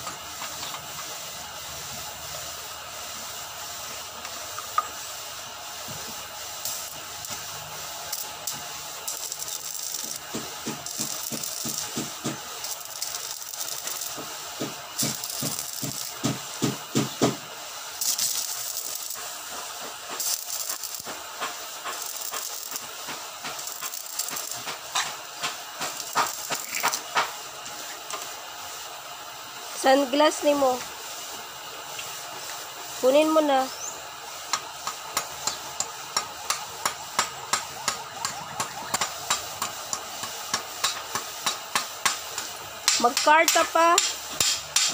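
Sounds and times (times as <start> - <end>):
welding arc crackling and hissing: 0.0 - 44.9
sharp pops: 34.9 - 44.9.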